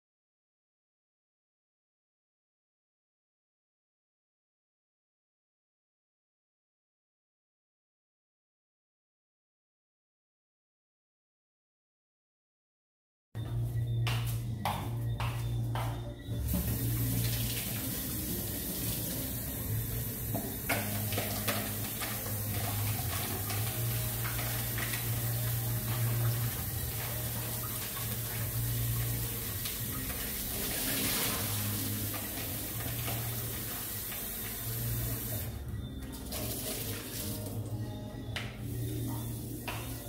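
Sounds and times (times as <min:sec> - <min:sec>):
plastic bowl being rinsed: 0:16.5 - 0:35.4, 0:36.1 - 0:37.7
water poured into sink: 0:16.5 - 0:35.4, 0:36.2 - 0:37.6
tap running into steel sink: 0:20.3 - 0:25.0.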